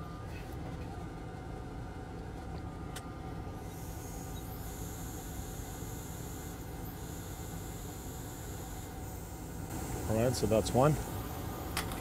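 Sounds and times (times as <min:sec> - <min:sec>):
low hum of bench equipment: 0:00.0 - 0:12.0
hot-air station hissing: 0:03.6 - 0:12.0.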